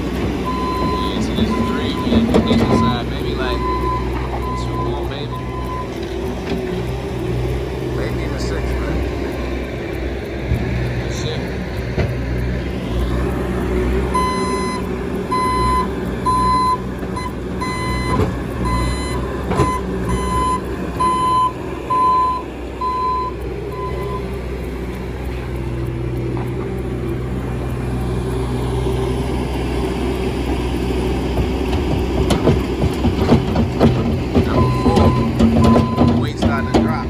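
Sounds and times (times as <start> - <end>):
diesel engine running: 0.0 - 37.0
backup alarm beeping: 0.4 - 6.3, 14.1 - 24.4, 34.4 - 37.0.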